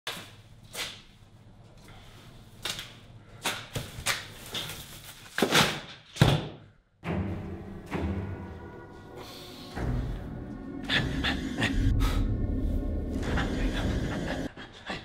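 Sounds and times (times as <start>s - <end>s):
music with low steady tones: 7.0s - 14.5s.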